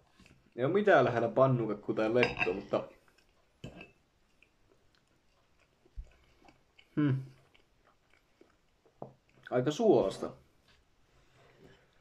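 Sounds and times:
person chewing food: 0:00.0 - 0:00.6, 0:02.7 - 0:09.6.

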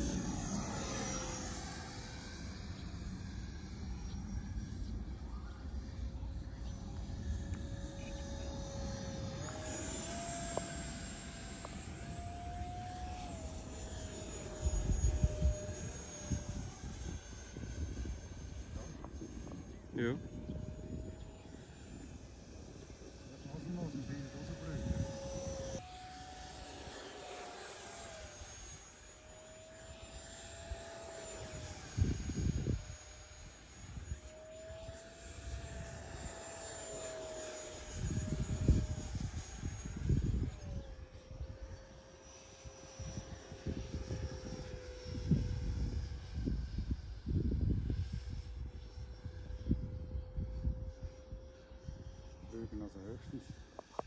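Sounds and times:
model jet fan whine: 0:00.0 - 0:54.0
wind rumbling on microphone: 0:06.5 - 0:25.8, 0:31.5 - 0:34.2, 0:37.8 - 0:42.0, 0:42.6 - 0:54.0.

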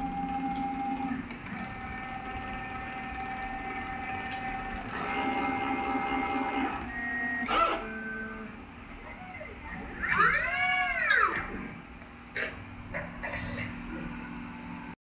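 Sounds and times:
stepper motors whining: 0:00.0 - 0:11.9.

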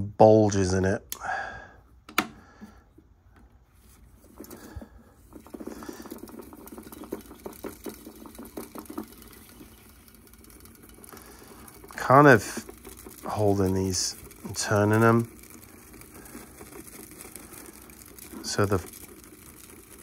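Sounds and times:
cassette reels clicking and rattling: 0:04.2 - 0:20.0.

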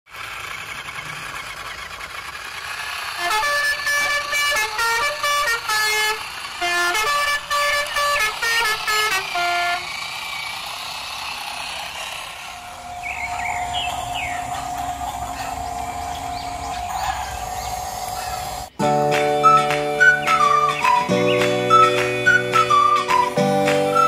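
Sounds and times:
buzzy horn-like tune: 0:03.1 - 0:10.2
steady whirring hiss: 0:09.3 - 0:18.8.

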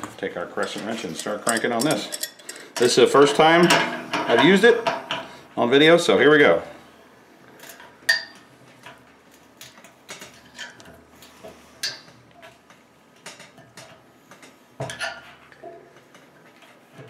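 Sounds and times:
wrench clicking and clinking on metal: 0:00.6 - 0:03.0.

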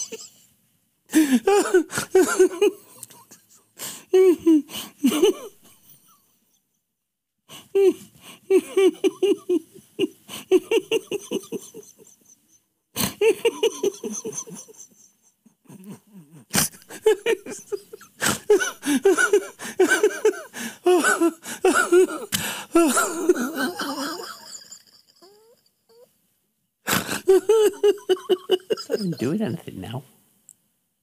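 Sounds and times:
man laughing in fits: 0:00.0 - 0:00.3, 0:01.2 - 0:05.8, 0:13.0 - 0:26.0, 0:27.0 - 0:29.5.

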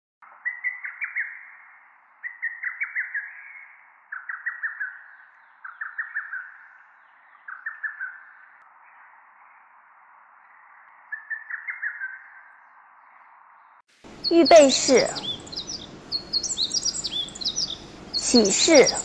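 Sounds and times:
bird chirping phrase: 0:14.1 - 0:19.0.

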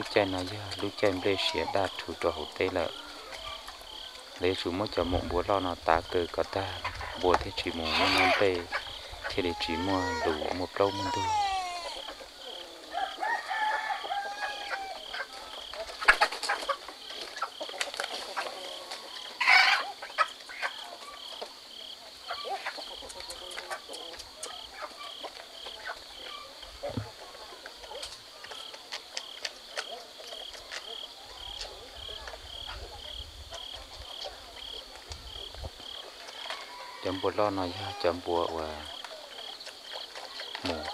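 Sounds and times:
chickens clucking: 0:00.0 - 0:40.9
insects trilling: 0:00.0 - 0:40.9
rooster crowing: 0:06.6 - 0:15.4, 0:36.3 - 0:38.1
shrill cry: 0:07.8 - 0:12.2.

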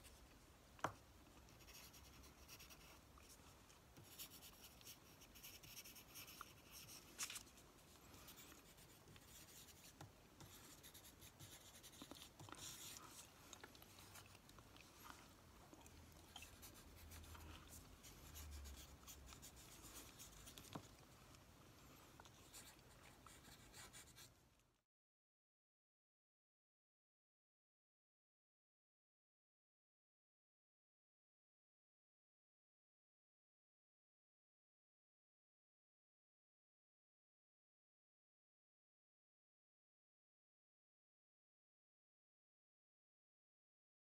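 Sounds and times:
pen scratching on paper: 0:01.5 - 0:03.4, 0:04.0 - 0:13.3, 0:16.3 - 0:20.9.

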